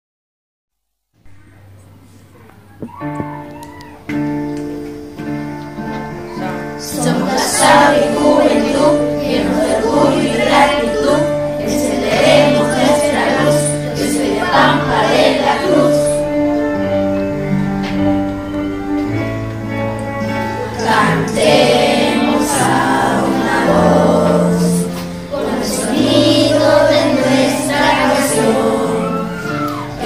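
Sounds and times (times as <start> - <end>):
instrumental backing music: 1.4 - 30.0
children singing a hymn: 5.8 - 19.3, 20.2 - 30.0.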